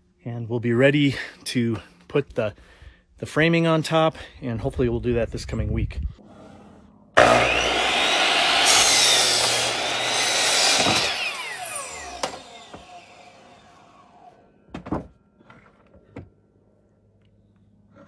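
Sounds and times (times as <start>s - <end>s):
power saw cutting wood: 7.2s - 14.5s
saw blade winding down: 7.2s - 14.5s.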